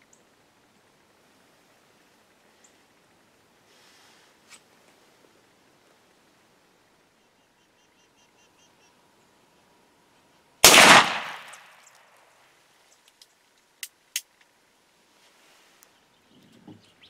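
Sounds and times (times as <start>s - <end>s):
loud gunshot: 10.6s - 11.7s.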